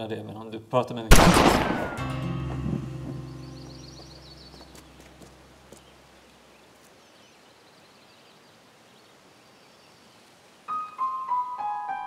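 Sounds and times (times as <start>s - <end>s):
faint outdoor hiss: 0.0s - 12.0s
piano notes stepping down: 1.7s - 5.6s.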